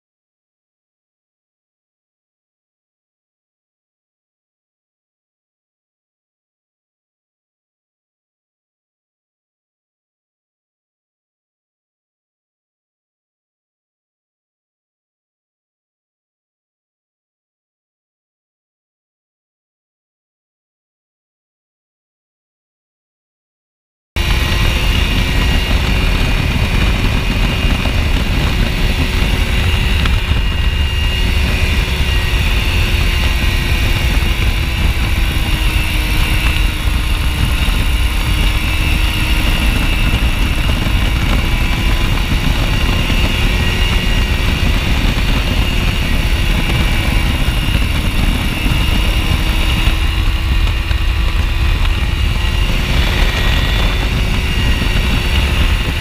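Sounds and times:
aircraft engine drone: 24.2 - 56.0
wind rush on microphone: 24.2 - 56.0.

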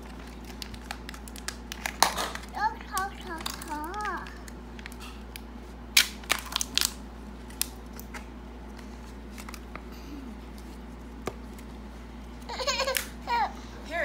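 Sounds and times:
foil wrapper crinkling: 0.0 - 9.8.

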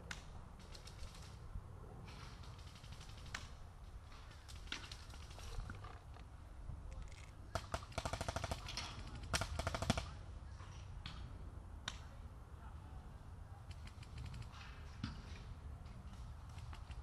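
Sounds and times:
paintball markers firing bursts: 2.3 - 3.6, 7.5 - 10.2.

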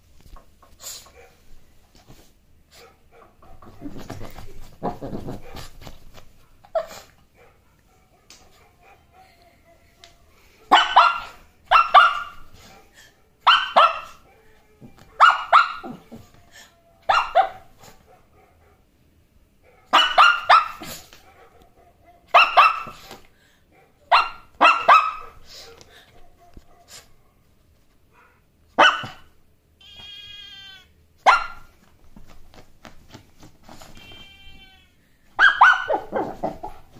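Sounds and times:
puppy barking: 6.4 - 9.8, 10.6 - 14.5, 15.1 - 16.2, 17.0 - 18.9, 19.6 - 23.1, 23.8 - 27.1, 28.1 - 29.4, 31.2 - 31.8, 35.4 - 36.9.

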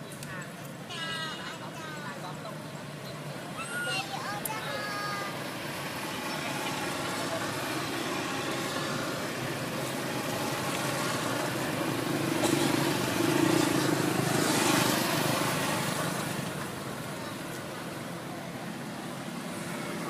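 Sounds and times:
outdoor background noise: 0.0 - 20.0
motor vehicle passing: 5.0 - 20.0.

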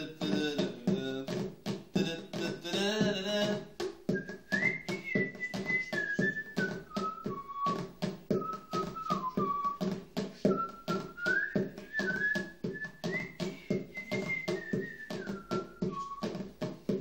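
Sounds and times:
hands drumming on plastic bowl: 0.0 - 17.0
man whistling a melody: 4.1 - 16.5.

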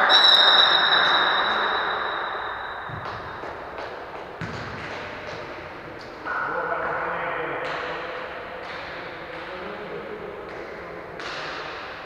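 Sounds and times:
high-pitched signal tone: 0.0 - 2.9
echoing hall noise: 0.0 - 12.0.

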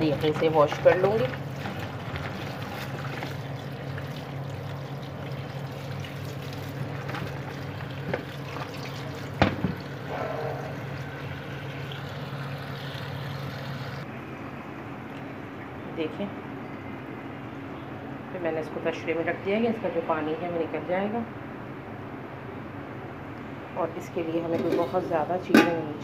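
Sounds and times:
tap water running into tub: 0.0 - 14.0.

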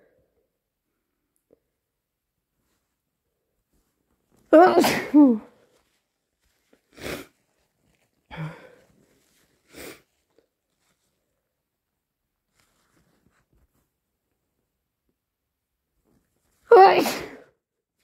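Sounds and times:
person sneezing: 4.6 - 5.5, 16.7 - 17.6
breathy noises: 6.6 - 10.4.

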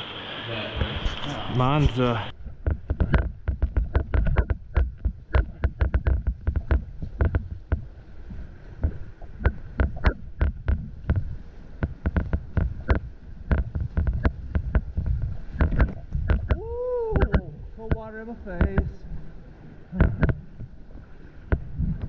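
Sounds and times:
water splashing and sloshing: 0.0 - 22.0
knocks and low thumps: 2.4 - 19.0, 19.9 - 20.8.

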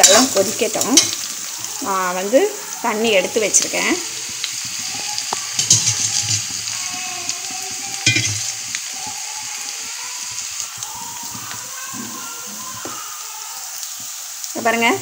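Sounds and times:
vegetables sizzling in oil: 0.0 - 15.0
metal spatula scraping pan: 3.1 - 6.8, 8.0 - 8.8.

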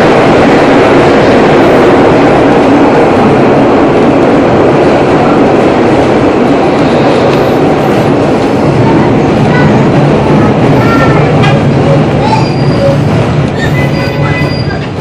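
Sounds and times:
streetcar rumbling on rails: 0.0 - 15.0
high wheel squeals: 12.2 - 15.0.

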